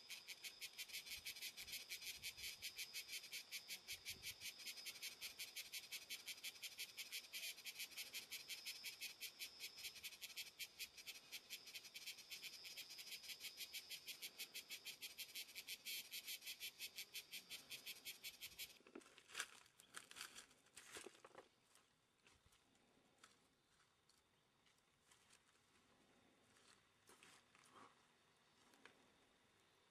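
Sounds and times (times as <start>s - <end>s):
insect chirping rapidly: 0.0s - 18.8s
soft scrapes and rustles: 25.0s - 28.9s.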